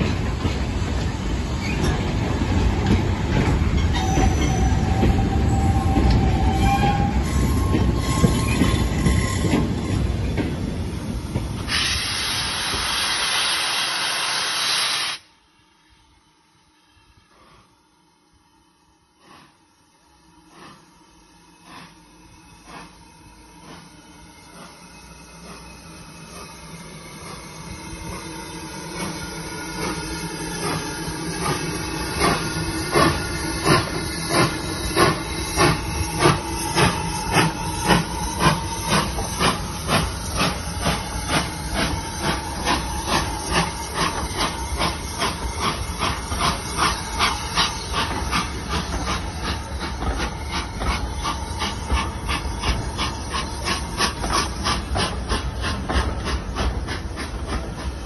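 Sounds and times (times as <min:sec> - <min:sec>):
steam locomotive exhaust chuffs: 0:00.0 - 0:15.3, 0:19.1 - 0:58.0
steam hissing: 0:07.3 - 0:15.3, 0:20.5 - 0:58.0.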